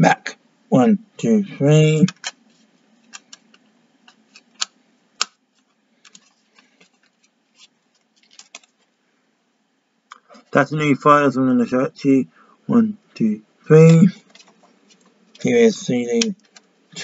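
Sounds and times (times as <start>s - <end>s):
plastic case clicks and handling: 3.1s - 5.4s.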